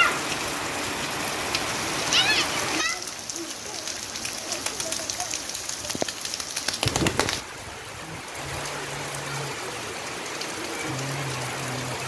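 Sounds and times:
heavy rain: 0.0 - 12.0
hands splashing in puddle: 4.4 - 7.4.

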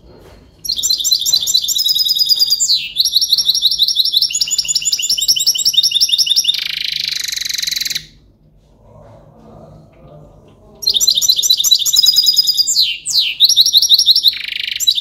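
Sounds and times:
goldfinch singing: 0.6 - 8.1, 10.8 - 15.0.

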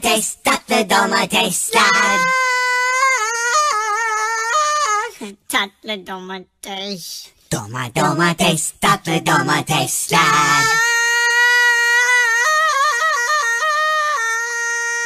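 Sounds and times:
cartoon voice singing high note: 1.7 - 5.2
cartoon voice chattering: 1.7 - 5.5.

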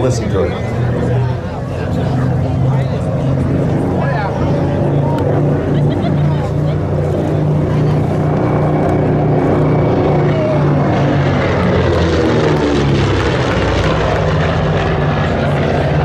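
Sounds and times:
propeller plane engines droning: 0.0 - 16.0.

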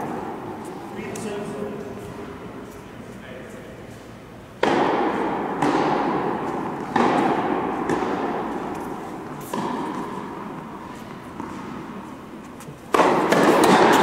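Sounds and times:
tennis ball hits echoing: 4.6 - 12.0, 12.8 - 14.0.

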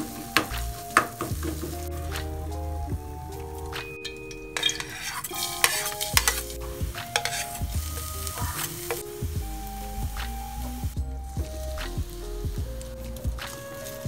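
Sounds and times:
soft background music: 0.0 - 14.0
metal spatula scraping pan: 3.8 - 9.0
garlic sizzling in oil: 4.6 - 14.0.

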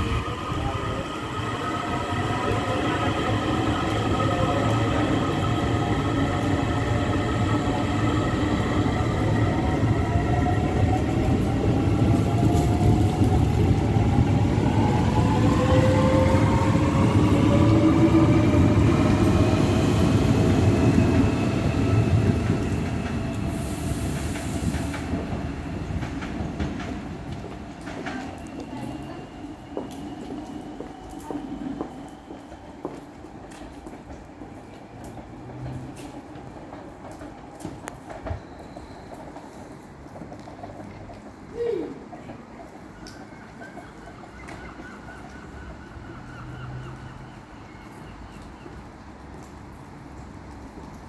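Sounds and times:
electric train rumbling and whining: 0.0 - 40.7.

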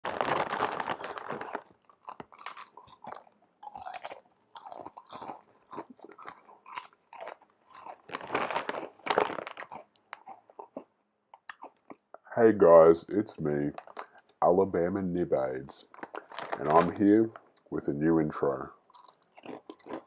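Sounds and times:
crunchy chewing: 0.1 - 12.1, 15.8 - 17.7, 18.9 - 20.0.

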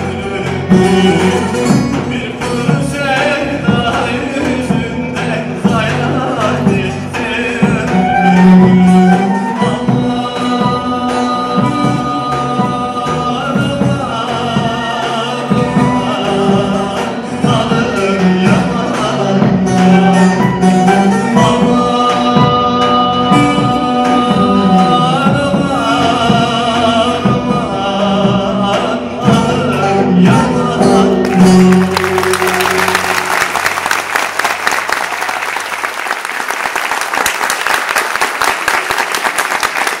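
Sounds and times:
man singing folk song: 0.0 - 33.3
audience applause: 31.4 - 40.0.

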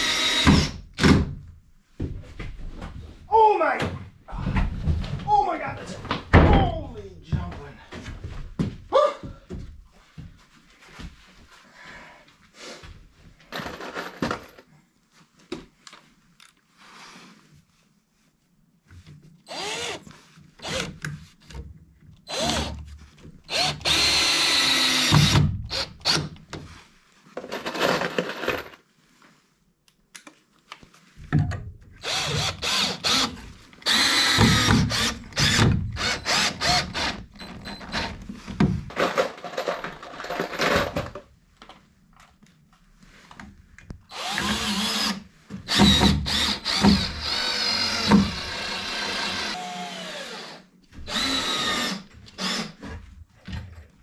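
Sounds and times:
cordless drill whining: 0.0 - 0.8, 19.5 - 20.9, 22.3 - 22.8, 23.5 - 26.3, 32.0 - 38.2, 44.1 - 52.8.

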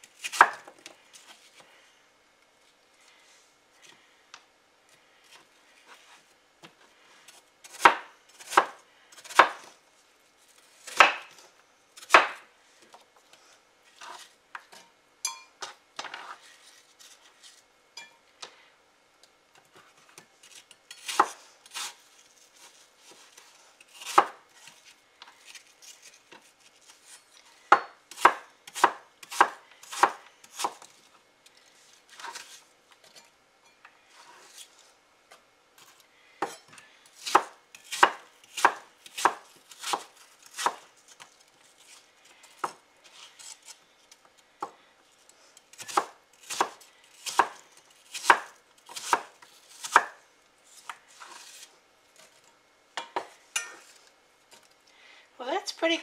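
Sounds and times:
knife chopping on wooden board: 7.7 - 9.7, 10.9 - 11.3, 24.0 - 24.4, 27.7 - 30.8, 37.2 - 40.8, 45.8 - 50.2.

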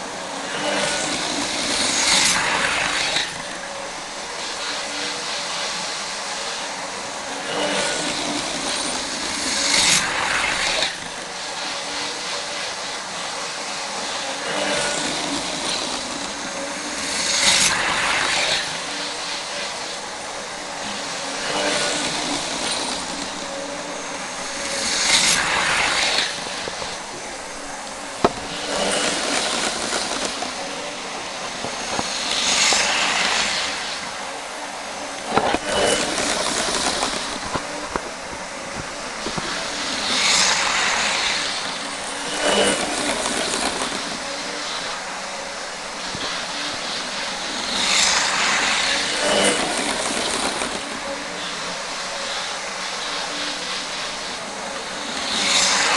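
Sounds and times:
model trains whirring and rattling: 0.0 - 55.9.

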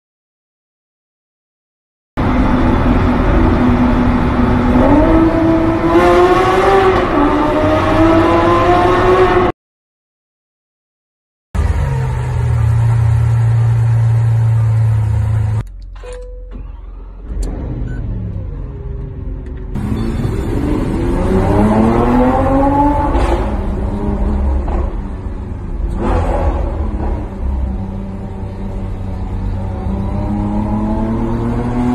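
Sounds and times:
car engine accelerating: 2.2 - 9.5, 16.6 - 31.9.

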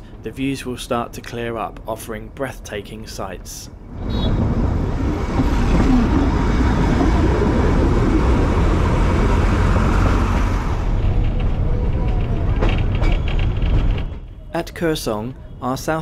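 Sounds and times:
train rumbling along: 3.4 - 14.8
passing road traffic: 3.8 - 14.1.

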